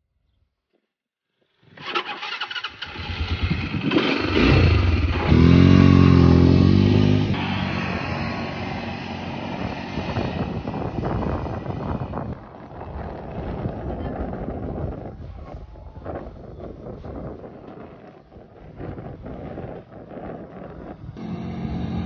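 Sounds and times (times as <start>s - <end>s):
quad bike engine revving: 1.8s - 12.4s, 21.1s - 22.0s.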